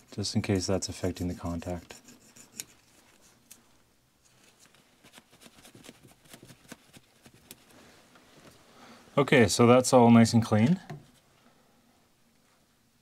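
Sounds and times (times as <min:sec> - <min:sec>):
metal tool scraping and ticking: 0:00.0 - 0:03.6.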